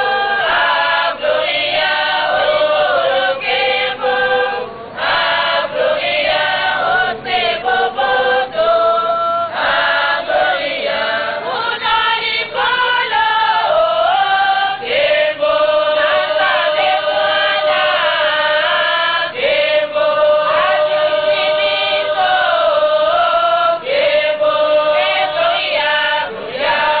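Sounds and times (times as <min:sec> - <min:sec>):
women singing gospel: 0:00.0 - 0:27.0.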